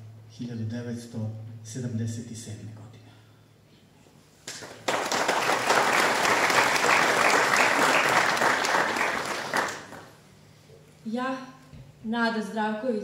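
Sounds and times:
audience applause: 4.5 - 10.2.

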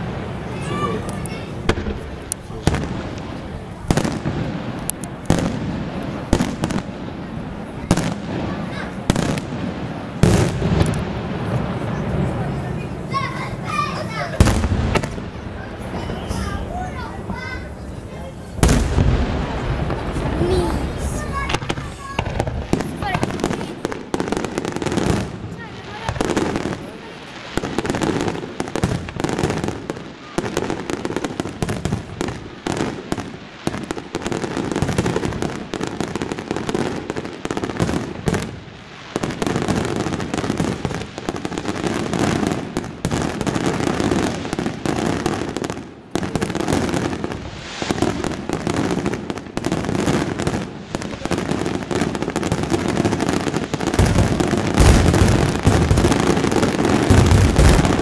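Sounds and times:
deep firework booms: 0.0 - 58.0
firework bursts and crackling: 0.0 - 58.0.

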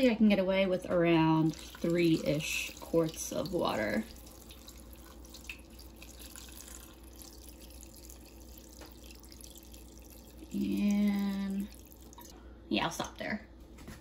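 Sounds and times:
water trickling into a metal pot: 1.3 - 12.4.

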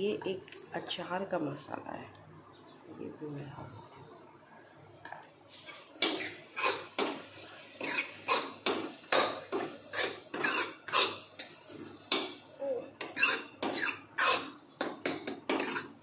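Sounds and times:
metal ladle scraping metal pot: 7.8 - 11.3, 13.0 - 14.6, 15.3 - 16.0.

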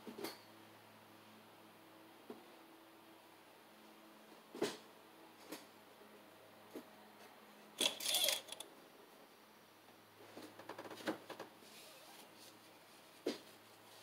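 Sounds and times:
dipstick clicks and scraping: 7.8 - 8.6.

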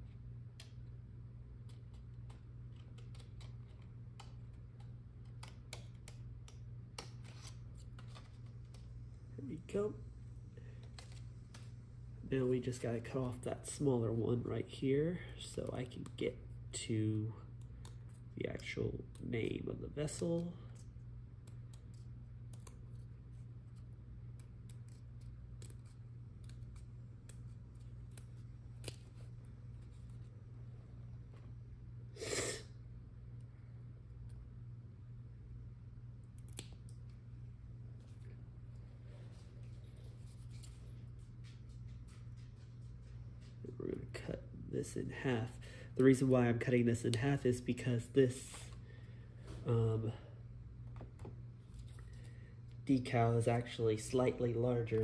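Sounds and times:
steady low hum: 0.0 - 55.0
scissors snipping: 23.7 - 30.0.

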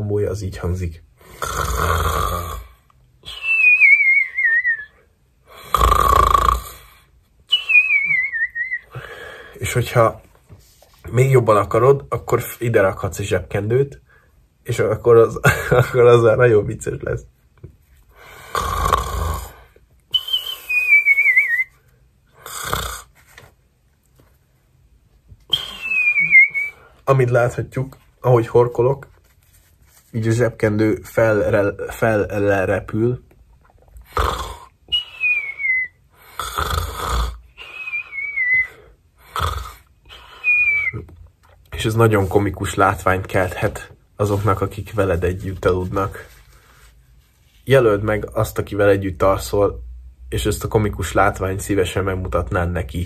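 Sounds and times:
man mock snoring: 1.2 - 2.8, 5.5 - 6.9, 18.4 - 19.7, 22.4 - 23.1, 34.0 - 34.7, 36.2 - 37.5, 39.2 - 39.9
man mock snoring and whistling: 1.3 - 6.9, 7.5 - 9.0, 18.5 - 23.1, 25.5 - 26.9, 34.1 - 41.1
falling warbling whistle: 20.2 - 21.6, 25.5 - 26.8.

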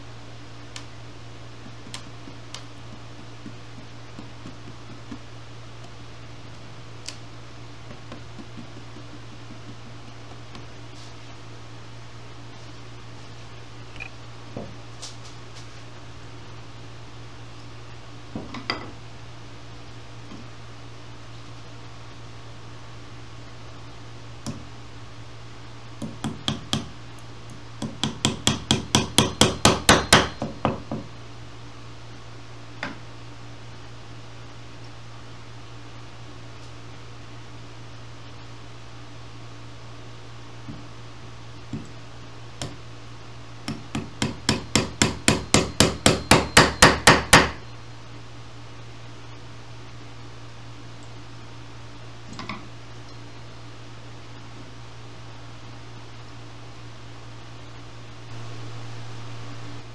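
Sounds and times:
small hammer tapping tacks: 1.6 - 6.0, 7.9 - 10.7, 26.0 - 31.0, 43.6 - 47.6
tack hammer blows on wood: 27.8 - 31.0, 43.6 - 47.6.

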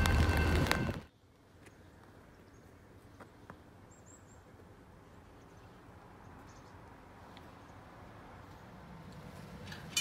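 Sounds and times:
faint outdoor ambience: 0.0 - 10.0.

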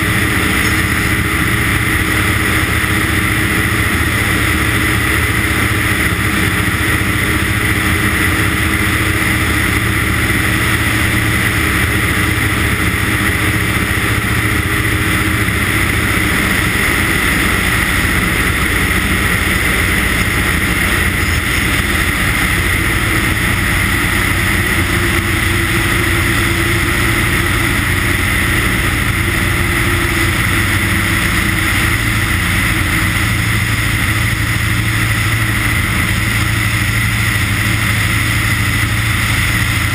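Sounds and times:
propeller plane engine in flight: 0.0 - 39.9.

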